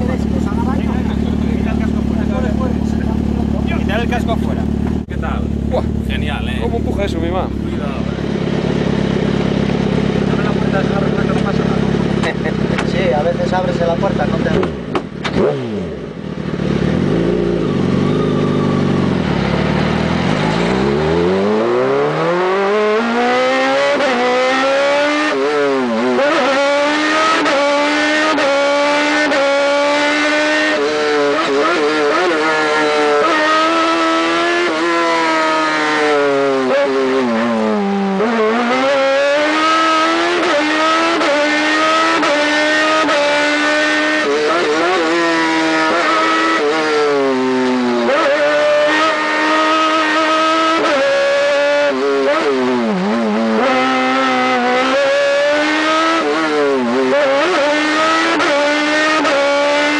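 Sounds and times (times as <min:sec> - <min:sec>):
vehicle engine revving: 0:00.0 - 0:59.9.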